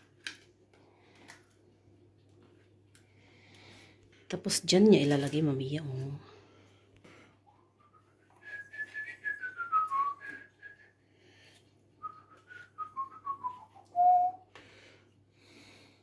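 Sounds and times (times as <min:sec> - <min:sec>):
person whistling a tune: 0:07.8 - 0:11.0, 0:12.0 - 0:14.5.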